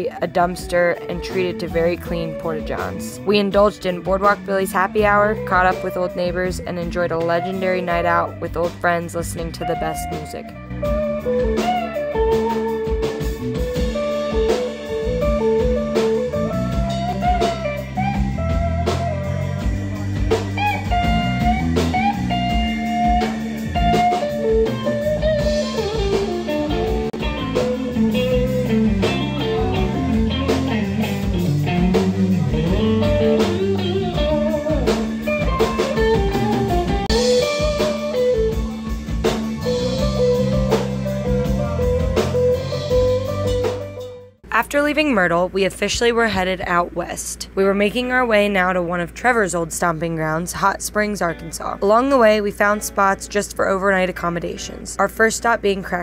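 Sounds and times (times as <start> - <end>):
drum kit: 0.0 - 44.6
blues guitar: 0.0 - 45.8.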